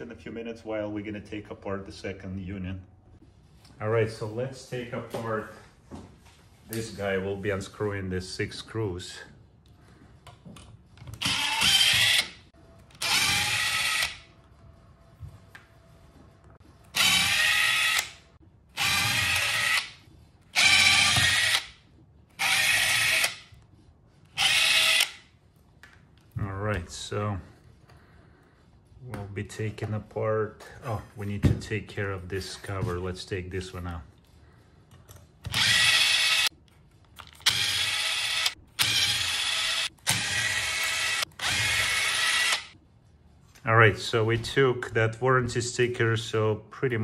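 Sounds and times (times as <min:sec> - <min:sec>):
cordless drill whining: 0:11.2 - 0:12.4, 0:13.0 - 0:14.2, 0:16.9 - 0:18.2, 0:18.8 - 0:19.9, 0:20.6 - 0:21.7, 0:22.4 - 0:23.4, 0:24.4 - 0:25.2, 0:35.4 - 0:36.5, 0:37.3 - 0:42.8
electric screwdriver whirring: 0:11.2 - 0:12.4, 0:13.0 - 0:14.2, 0:16.9 - 0:18.2, 0:18.8 - 0:19.9, 0:20.6 - 0:21.7, 0:22.4 - 0:23.4, 0:24.4 - 0:25.2, 0:35.5 - 0:36.5, 0:37.2 - 0:42.8.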